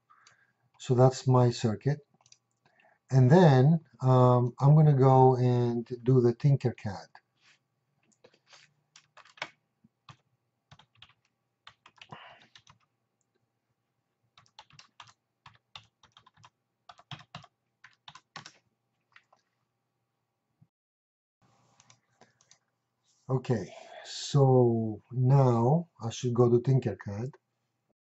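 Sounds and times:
typing on a computer keyboard: 8.1 - 12.9, 14.4 - 19.5.

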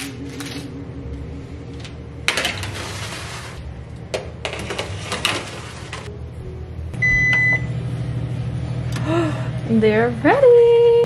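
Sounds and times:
oven door shutting: 1.8 - 6.1
oven timer beep: 7.0 - 7.8.

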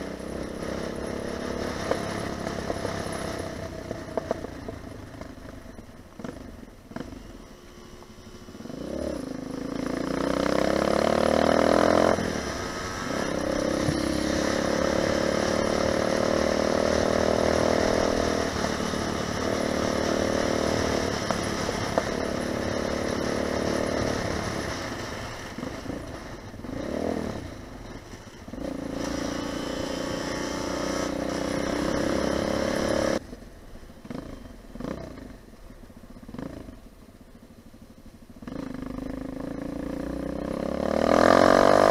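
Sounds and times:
motorbike engine revving: 6.2 - 27.7, 28.5 - 33.2, 38.4 - 41.9.

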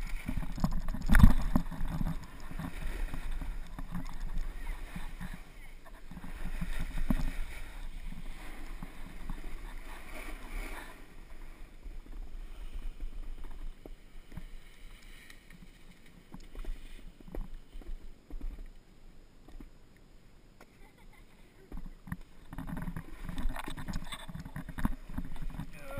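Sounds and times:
snowboard scraping over snow: 0.0 - 15.8.

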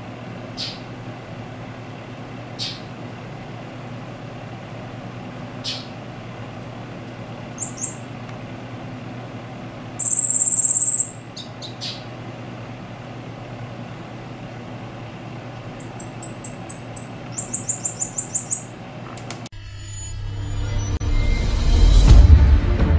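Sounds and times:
steady low hum: 0.0 - 22.9
bird chirping and trilling: 0.6 - 0.9, 2.6 - 2.9, 5.6 - 6.0, 7.5 - 8.1, 10.0 - 12.1, 15.8 - 18.8.

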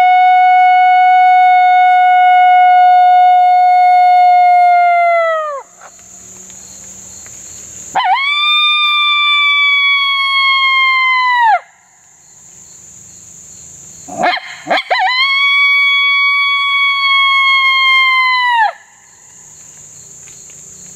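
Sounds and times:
high insect buzz: 0.0 - 20.9
coyote howl mouth call: 14.1 - 18.6.

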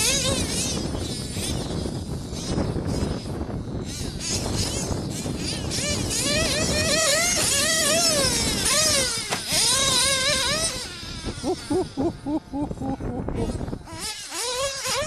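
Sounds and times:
nitro engine revving: 5.7 - 15.0.

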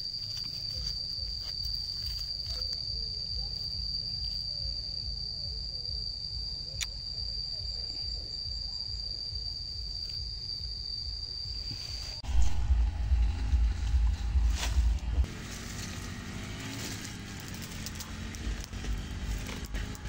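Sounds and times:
insect trilling: 0.0 - 15.1, 15.7 - 20.0
low rumble: 10.7 - 20.0.

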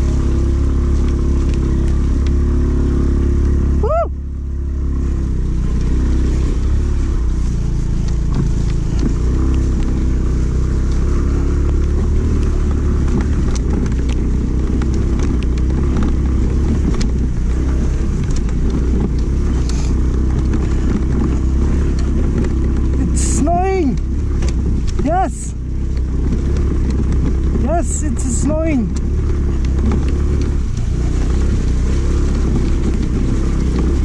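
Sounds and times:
scooter engine running: 0.0 - 34.0
wind rumbling on microphone: 0.0 - 34.0
clicks and rattles: 11.6 - 34.0.

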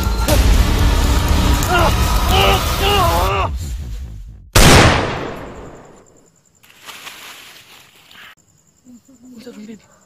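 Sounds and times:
pistol gunshot: 4.6 - 6.0.

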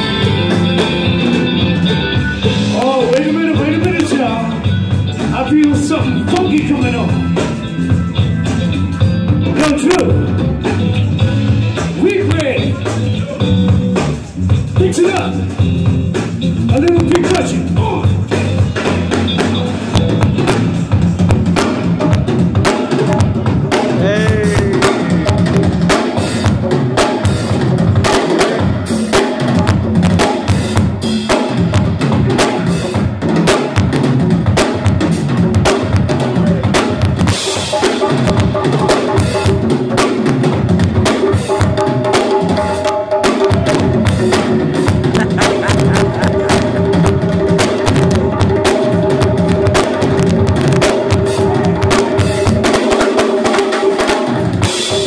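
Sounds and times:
conga drums: 0.0 - 55.0
funk band playing: 0.0 - 55.0.

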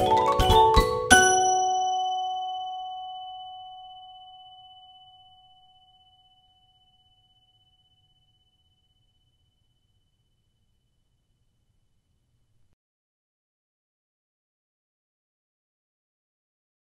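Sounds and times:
marimba chord ringing: 0.0 - 5.7
high bell-like tones: 0.0 - 9.4.

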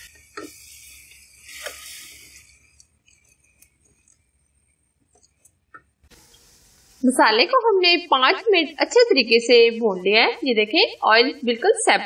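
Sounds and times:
masala sizzling in oil: 0.0 - 4.6, 6.1 - 7.5
spatula scraping a pot: 0.0 - 4.6.

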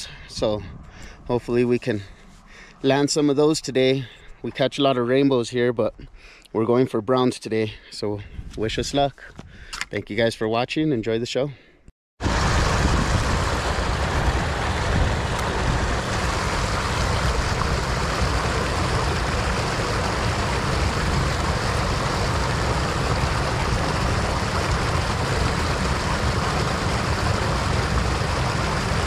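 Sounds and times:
deep water rumble: 12.2 - 29.0
river water rushing over rocks: 12.2 - 29.0.

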